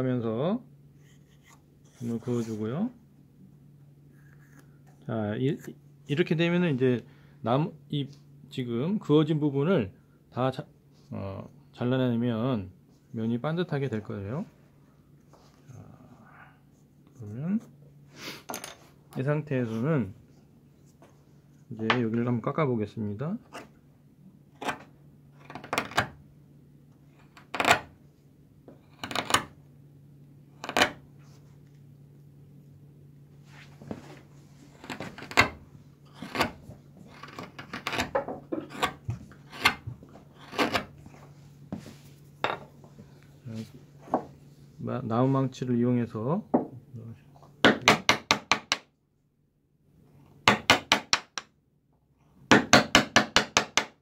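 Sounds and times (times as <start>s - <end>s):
knife paring wood: 34.7s - 41.0s
mallet striking chisel into wood: 47.6s - 48.8s, 50.4s - 51.5s, 52.5s - 54.0s.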